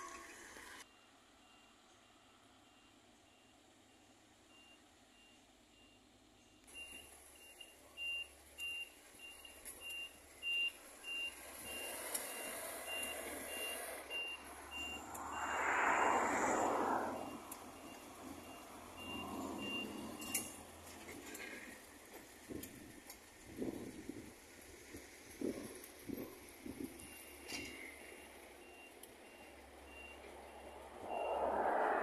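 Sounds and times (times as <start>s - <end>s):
diesel locomotive engine: 0.0s - 32.0s.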